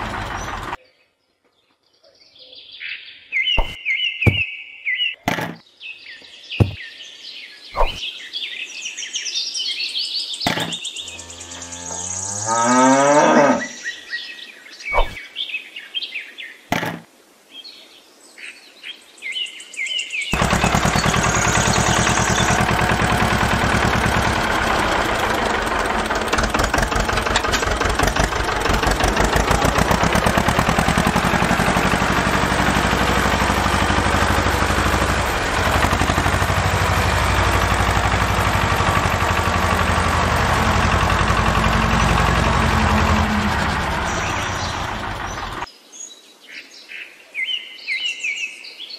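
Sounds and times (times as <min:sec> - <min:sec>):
tractor engine running: 0:00.0 - 0:00.8, 0:03.6 - 0:04.4, 0:10.5 - 0:12.6, 0:20.4 - 0:45.7
cow mooing: 0:11.1 - 0:13.8.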